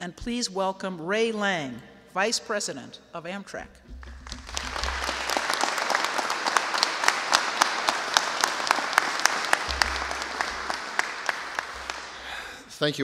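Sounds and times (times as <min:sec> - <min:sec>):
audience applauding: 0:04.0 - 0:12.6.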